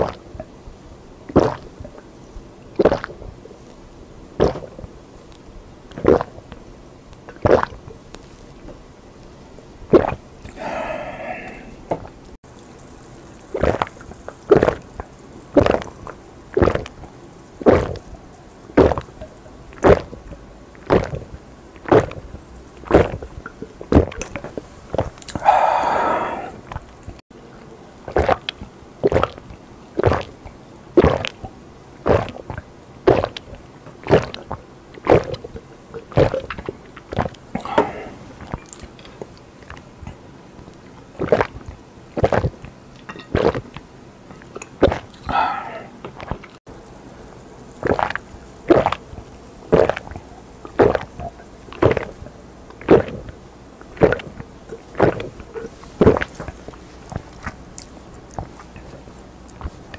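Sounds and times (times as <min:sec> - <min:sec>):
man gulping a drink: 0:01.3 - 0:03.2, 0:04.4 - 0:04.9, 0:07.2 - 0:08.8, 0:09.9 - 0:12.4, 0:13.5 - 0:17.0, 0:17.6 - 0:18.1, 0:18.8 - 0:31.5, 0:32.1 - 0:46.6, 0:47.8 - 0:49.1, 0:49.7 - 0:59.9
breathy exhale: 0:10.5 - 0:11.9, 0:25.3 - 0:26.7, 0:37.6 - 0:38.4, 0:45.2 - 0:46.0.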